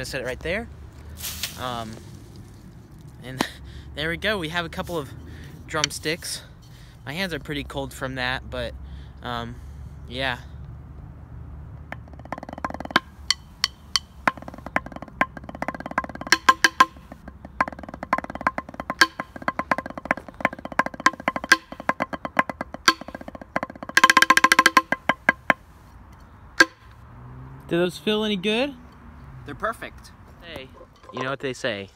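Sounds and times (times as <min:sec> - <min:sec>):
drumsticks playing on drumhead: 0:05.7 - 0:06.1, 0:11.8 - 0:25.6, 0:26.6 - 0:26.9.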